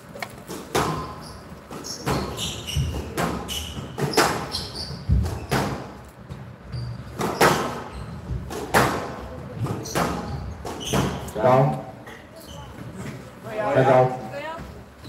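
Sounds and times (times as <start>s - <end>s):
squash ball hitting rackets and walls: 0.4s - 11.4s
shoes squeaking on court floor: 0.5s - 13.4s.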